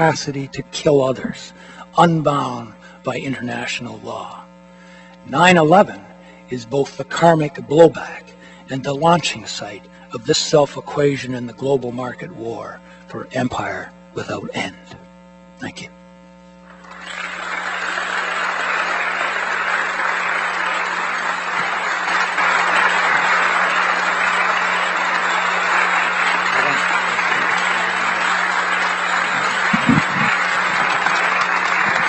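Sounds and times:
audience applauding: 16.7s - 32.0s.

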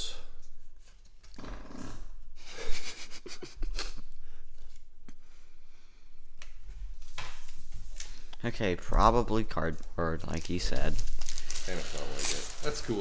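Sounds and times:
cards and wrappers rustling: 9.3s - 13.0s.

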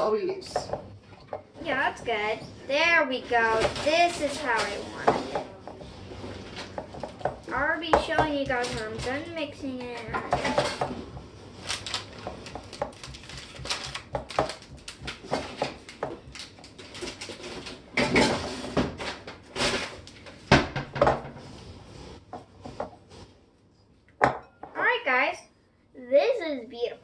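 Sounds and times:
spatula scraping mixing bowl: 0.5s - 19.9s.

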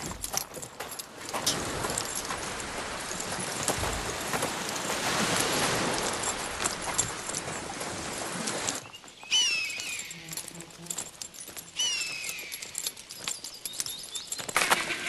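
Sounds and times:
footsteps crunching on pebbles: 0.0s - 15.0s
gear clicking and rattling: 0.0s - 15.0s.

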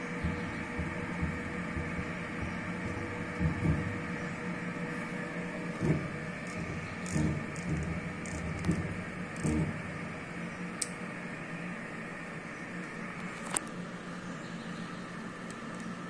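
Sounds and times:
low thumps: 0.0s - 10.6s
milling machine running: 0.0s - 13.6s.

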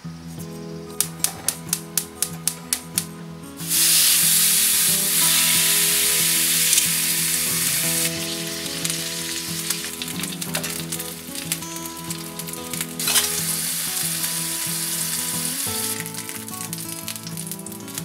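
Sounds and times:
meat sizzling in a frying pan: 3.7s - 18.0s
fat crackling spits: 3.8s - 14.4s.

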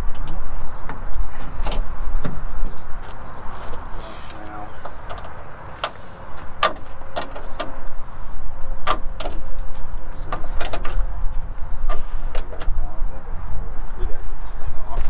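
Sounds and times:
sharp knocks and clicks: 6.6s - 7.8s, 8.8s - 9.4s, 10.3s - 11.0s.

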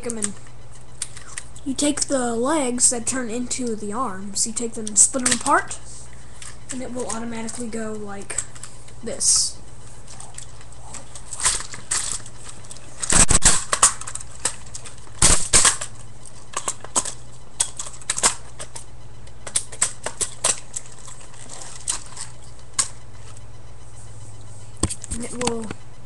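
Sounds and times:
plastic toy parts clicking and snapping: 4.8s - 5.6s, 13.0s - 15.9s, 16.5s - 18.8s, 19.4s - 20.7s.

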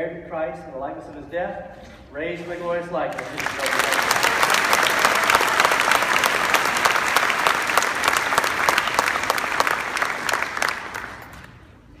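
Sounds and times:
congregation applauding: 3.1s - 11.6s.

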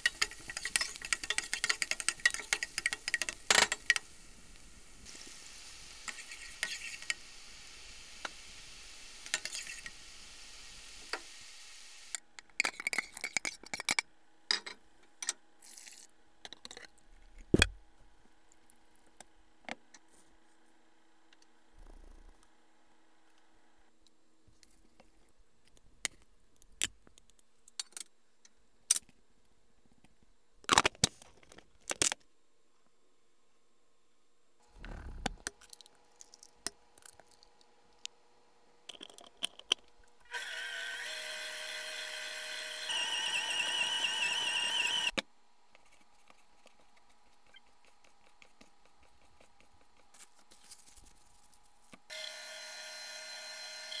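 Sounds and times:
stand mixer motor whining: 40.3s - 45.2s, 52.1s - 54.0s.

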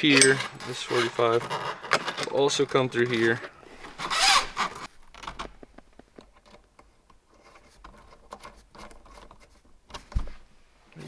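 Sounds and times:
small metal clicks and scraping: 0.0s - 3.4s.

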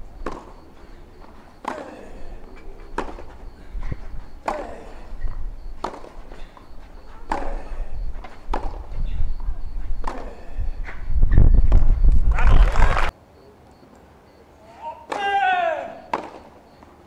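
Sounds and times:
tennis racket hitting ball: 0.2s - 0.6s, 1.6s - 1.9s, 3.0s - 3.3s, 5.8s - 6.2s, 8.5s - 8.8s.

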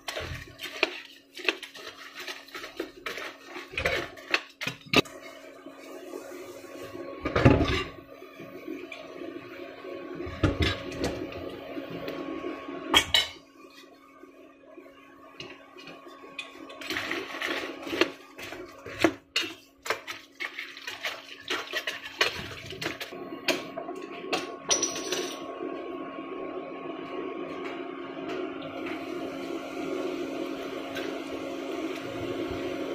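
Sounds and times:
steady hum: 4.9s - 19.3s, 22.9s - 32.9s.

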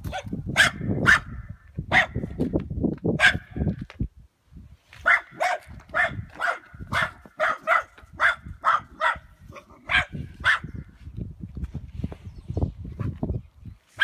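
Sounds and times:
dog barking: 0.1s - 2.2s, 3.2s - 3.6s, 5.0s - 10.7s.

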